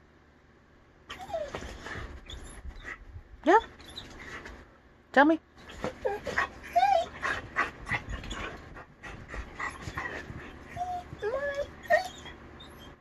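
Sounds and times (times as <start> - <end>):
dog whining: 1.1 - 4.5, 5.6 - 13.0
dog panting: 5.6 - 12.2.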